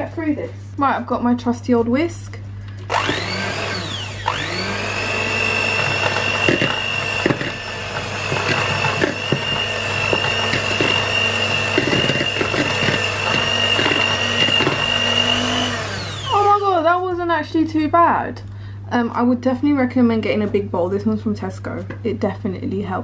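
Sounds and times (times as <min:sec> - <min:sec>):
electric hand mixer running: 0:02.8 - 0:16.8.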